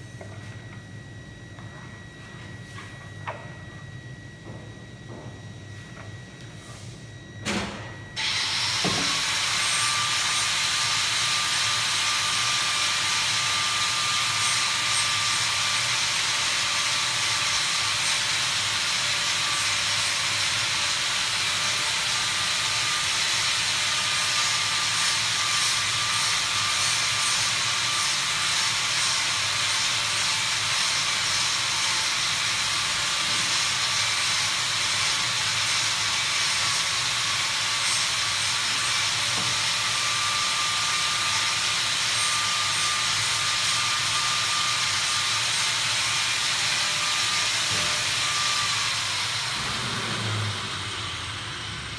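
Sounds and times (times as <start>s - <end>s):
high whine: 0.0s - 10.3s.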